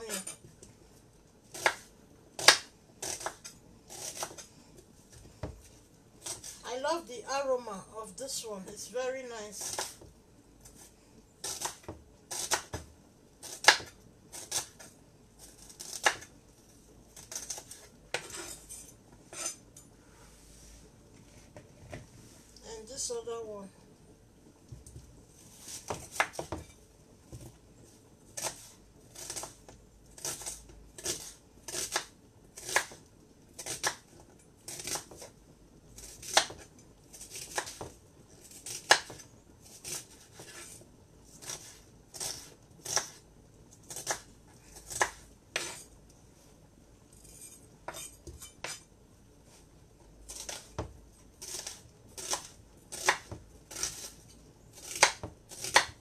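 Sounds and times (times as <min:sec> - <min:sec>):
knife slicing onion on board: 0:01.5 - 0:04.5, 0:10.6 - 0:16.3, 0:25.6 - 0:26.7, 0:28.4 - 0:33.0, 0:33.6 - 0:34.1, 0:34.7 - 0:35.3, 0:36.0 - 0:43.2, 0:43.8 - 0:45.9, 0:47.2 - 0:48.8, 0:50.3 - 0:56.0.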